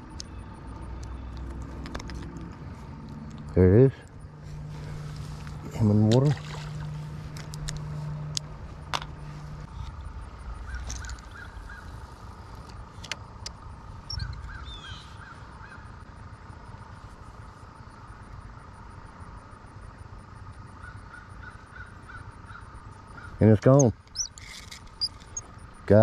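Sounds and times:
crows cawing: 0:10.6 - 0:12.0, 0:20.8 - 0:23.4.

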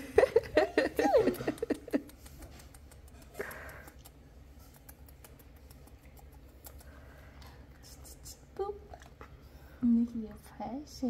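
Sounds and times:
breathy sniff: 0:03.3 - 0:04.0.

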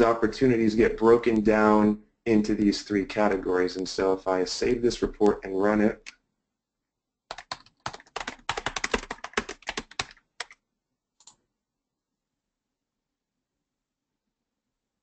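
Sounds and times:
typing on computer keyboard: 0:07.3 - 0:10.6.

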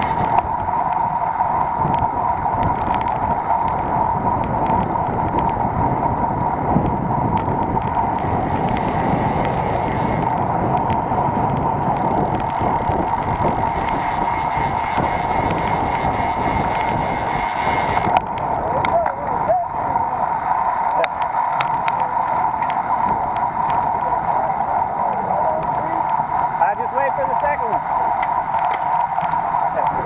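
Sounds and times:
faint ticks: 0:00.0 - 0:05.8, 0:20.4 - 0:24.0, 0:27.7 - 0:30.0
mid-pitched hum: 0:00.0 - 0:30.0
tyre-on-road noise: 0:00.0 - 0:30.0
wind rushing over microphone: 0:00.0 - 0:30.0.

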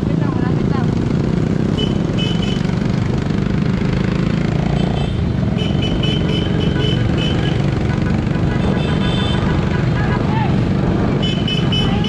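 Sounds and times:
motorcycle engines: 0:00.0 - 0:12.0
wind rushing over microphone: 0:09.5 - 0:12.0.

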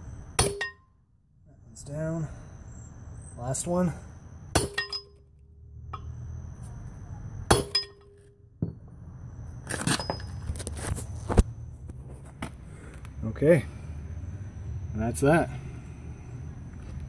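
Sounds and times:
hammer clanking on steel: 0:00.4 - 0:00.8, 0:04.5 - 0:05.2
metal tools clinking: 0:04.8 - 0:05.2, 0:09.7 - 0:10.6.

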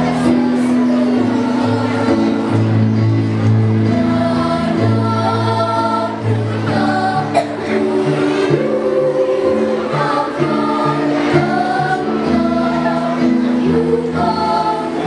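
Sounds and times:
children's choir singing: 0:00.0 - 0:15.0
instrumental accompaniment: 0:00.0 - 0:15.0.

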